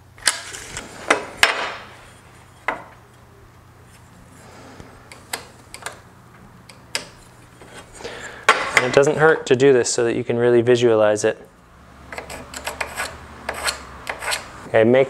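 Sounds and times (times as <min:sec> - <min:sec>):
short scrape: 0:12.2 - 0:14.7.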